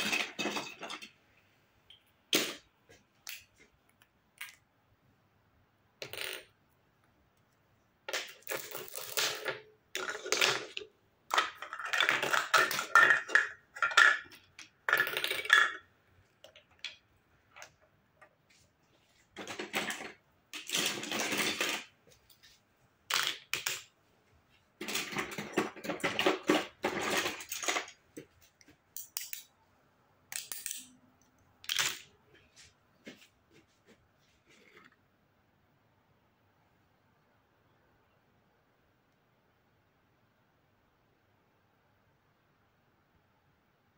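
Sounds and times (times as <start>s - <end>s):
plastic toys clattering: 0.0s - 1.2s, 8.1s - 17.0s, 19.3s - 22.0s, 23.1s - 23.9s, 24.8s - 28.3s, 31.6s - 32.1s.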